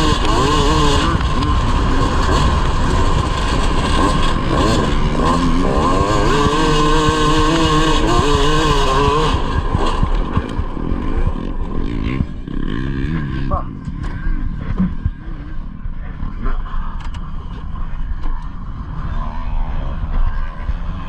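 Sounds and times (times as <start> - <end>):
two-stroke kart engine revving: 0.0 - 15.7.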